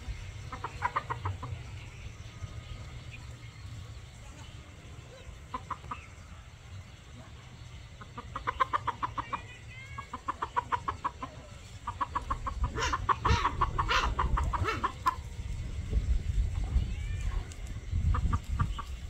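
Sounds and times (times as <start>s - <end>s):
chickens clucking rapidly: 0.0s - 4.0s, 5.0s - 16.8s, 17.7s - 19.0s.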